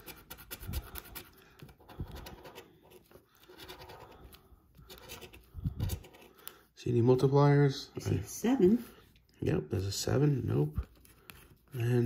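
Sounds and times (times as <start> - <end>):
plastic tool scraping ticket: 0.0 - 6.6.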